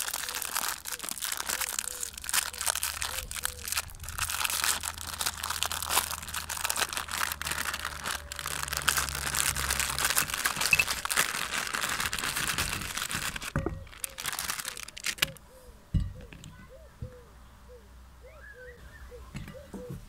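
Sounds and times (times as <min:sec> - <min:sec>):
plastic wrapper crinkling and tearing: 0:00.0 - 0:15.4.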